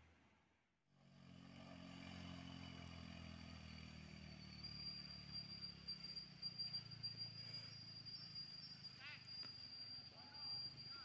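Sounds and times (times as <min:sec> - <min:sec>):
scooter engine running: 0:01.1 - 0:07.4.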